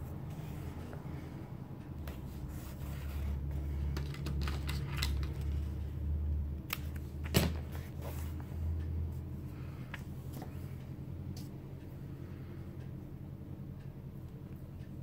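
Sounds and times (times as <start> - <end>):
steady low hum: 0.0 - 15.0
tape crackling and rustling: 2.0 - 8.9.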